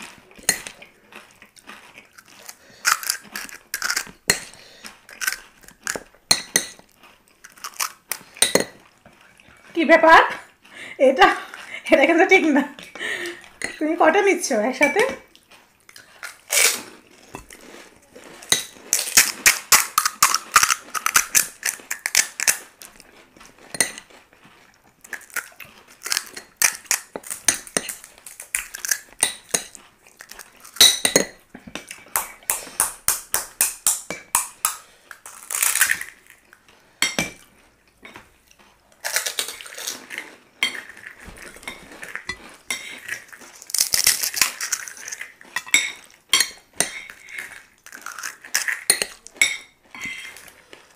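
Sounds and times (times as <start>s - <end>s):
spoons clinking against plates: 0.4s - 0.8s, 5.2s - 6.8s, 8.4s - 8.8s, 18.5s - 22.6s, 23.7s - 24.1s, 25.1s - 29.8s, 30.7s - 31.4s, 40.6s - 43.3s, 45.5s - 50.5s
crisp shells cracking: 2.0s - 6.1s, 7.4s - 8.4s, 16.0s - 16.9s, 18.6s - 22.7s, 25.1s - 30.9s, 32.1s - 36.6s, 39.0s - 45.5s, 47.1s - 49.3s.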